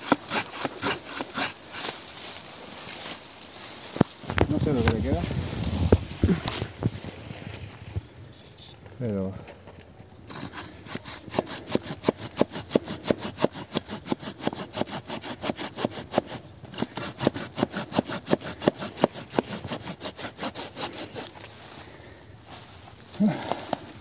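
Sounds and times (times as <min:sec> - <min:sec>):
hand saw cutting log: 0:00.0 - 0:05.1, 0:10.3 - 0:21.6.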